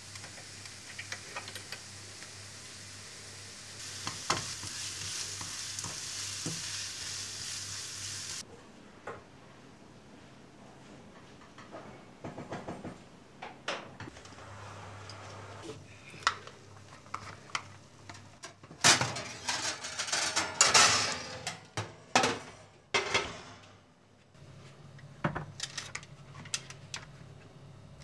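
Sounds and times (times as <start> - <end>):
dishes clattering and scraping: 18.4 - 23.6.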